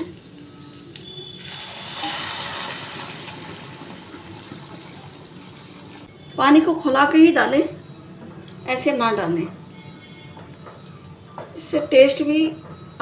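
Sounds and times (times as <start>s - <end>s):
water pouring into a pan: 0.9s - 6.0s.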